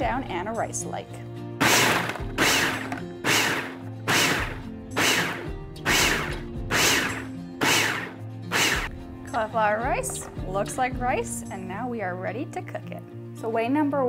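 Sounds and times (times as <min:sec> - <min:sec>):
food processor pulsing: 0:01.6 - 0:08.9.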